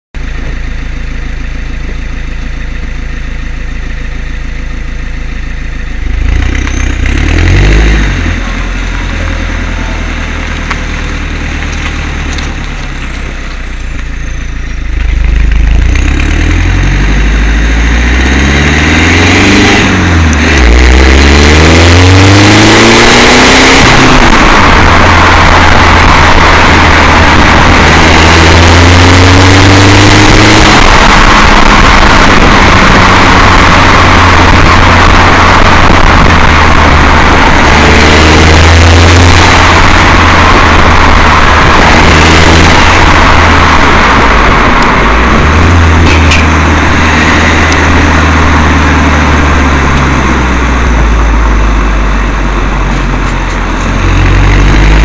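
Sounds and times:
diesel car engine: 0.0 - 55.0.

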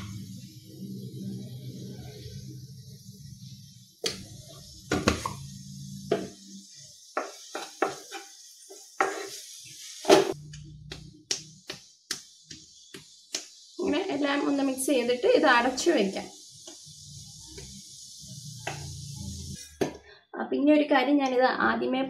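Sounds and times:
onions sizzling in oil: 0.0 - 19.9
wooden spatula scraping a pan: 7.2 - 10.4.

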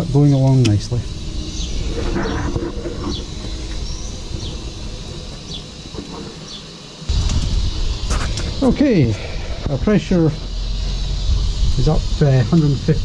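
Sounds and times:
low rumble: 7.1 - 13.0.

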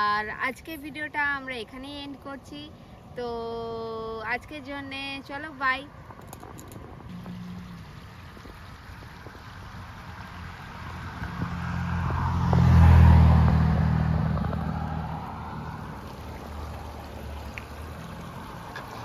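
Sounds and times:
car driving past: 7.1 - 19.0.

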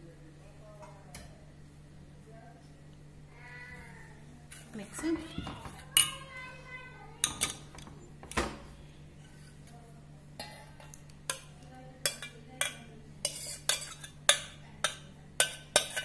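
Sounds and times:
spoon clinking on steel pan: 10.4 - 16.0.

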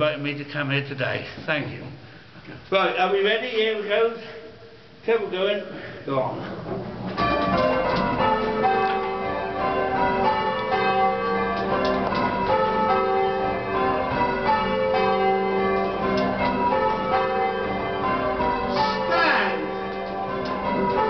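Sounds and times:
church bells ringing: 7.0 - 21.0.

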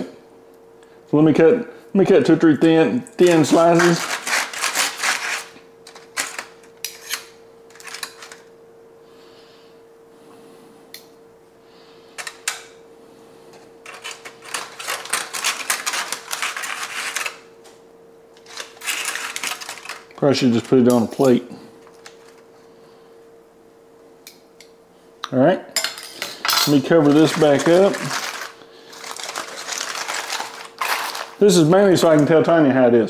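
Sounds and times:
faint steady hum: 0.0 - 33.0
knife scraping on foil and pan: 3.3 - 8.0, 13.9 - 17.4, 18.4 - 20.0, 27.0 - 31.4.

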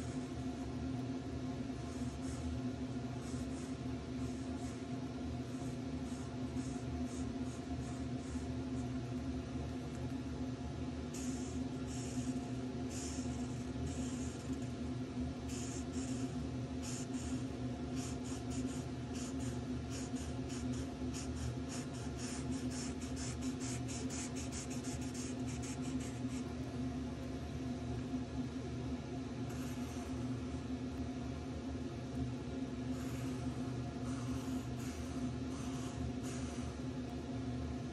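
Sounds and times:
steady low hum: 0.0 - 37.9
marker scratching on paper: 12.9 - 14.7, 15.5 - 17.4, 18.0 - 26.5.

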